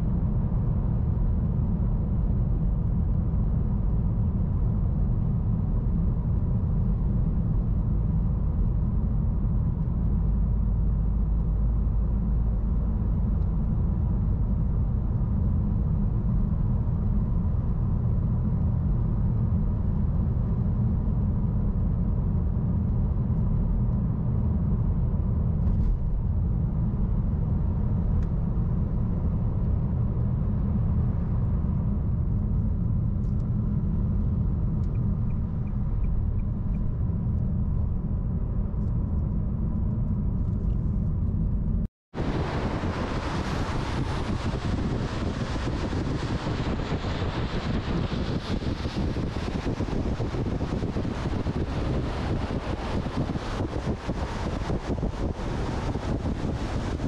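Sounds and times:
car cabin road rumble: 0:00.0 - 0:57.0.

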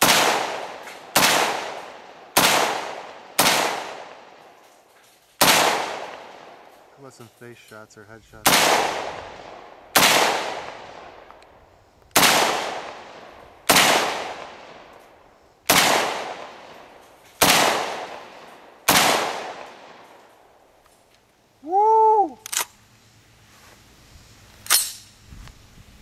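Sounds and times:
rifle shots echoing: 0:00.0 - 0:04.4, 0:05.4 - 0:06.7, 0:08.4 - 0:11.4, 0:12.2 - 0:14.9, 0:15.7 - 0:20.2.

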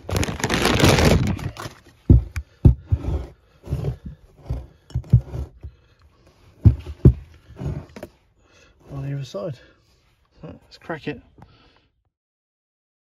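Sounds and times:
plastic bag rustling: 0:00.0 - 0:02.0.

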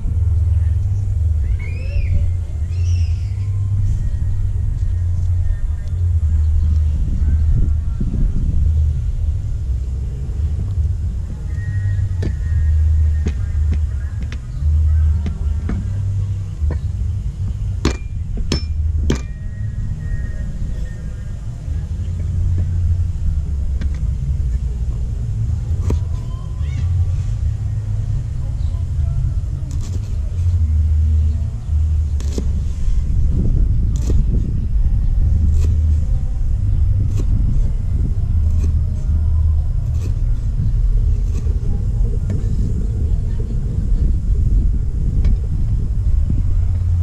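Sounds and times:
low steady rumble: 0:00.0 - 0:47.0
cleaver striking wooden block: 0:17.8 - 0:19.4, 0:32.2 - 0:32.6.

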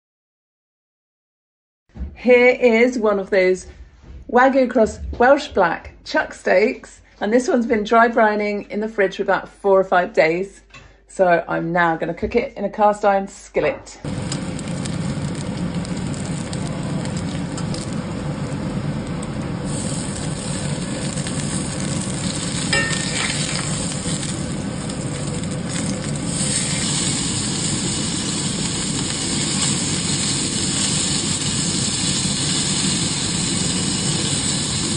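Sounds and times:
steak sizzling in a skillet: 0:14.1 - 0:34.9.

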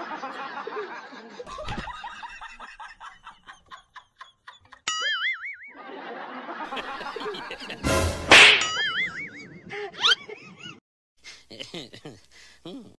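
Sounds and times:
person snickering: 0:11.3 - 0:13.0.

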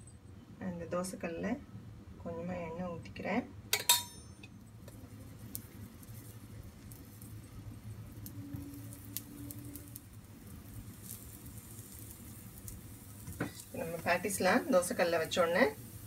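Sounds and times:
low steady hum: 0:00.0 - 0:16.0
patties patting on griddle: 0:08.2 - 0:14.3.

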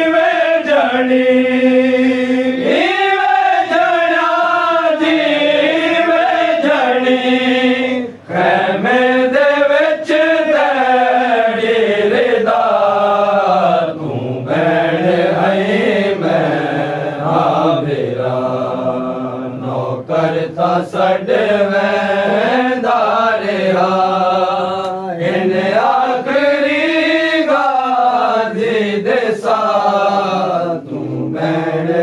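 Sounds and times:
men chanting: 0:00.0 - 0:32.0.

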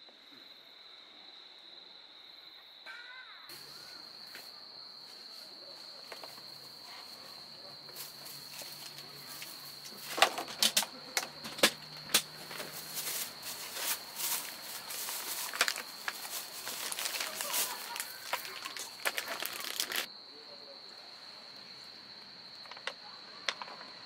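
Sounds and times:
crickets chirring: 0:00.0 - 0:24.0
plastic bags crinkling: 0:09.9 - 0:20.1.

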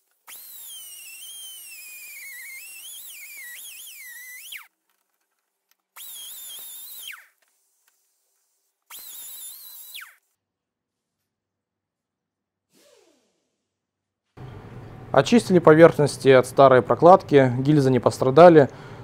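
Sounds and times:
wire brush power tool whining: 0:00.0 - 0:04.7, 0:05.9 - 0:07.5, 0:08.9 - 0:10.3, 0:12.7 - 0:13.7.

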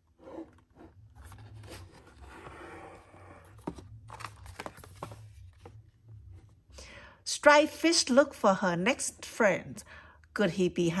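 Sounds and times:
stiff pages rustling: 0:00.4 - 0:05.8.

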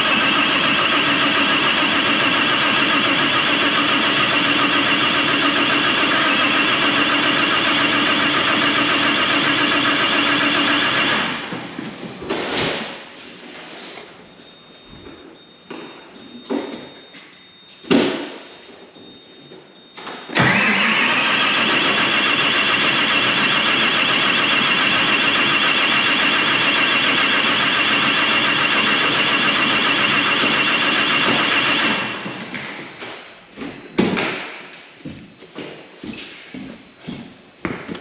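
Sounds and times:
starter motor cranking diesel engine: 0:00.0 - 0:12.0, 0:20.4 - 0:33.0.

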